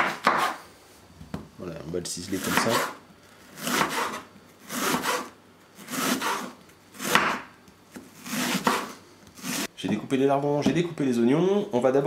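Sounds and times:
knife sawing through onion: 0:02.3 - 0:07.3, 0:08.2 - 0:09.7.

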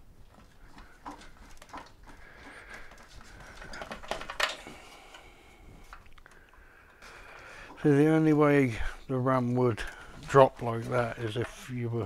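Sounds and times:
hands clicking and knocking plastic parts: 0:00.3 - 0:08.4.

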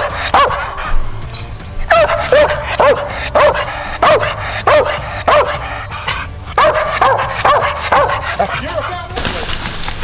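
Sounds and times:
dog barking: 0:00.0 - 0:00.9, 0:01.8 - 0:08.7.

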